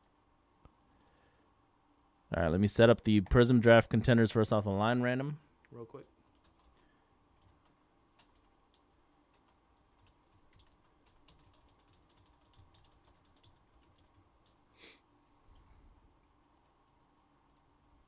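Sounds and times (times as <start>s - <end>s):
typing on keyboard: 6.3s - 6.8s, 7.4s - 14.6s, 17.5s - 17.7s.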